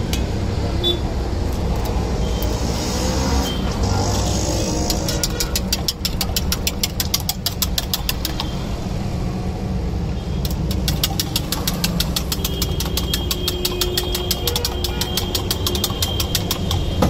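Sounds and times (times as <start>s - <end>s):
whisk clinking in metal mug: 4.8s - 8.6s, 10.5s - 17.0s.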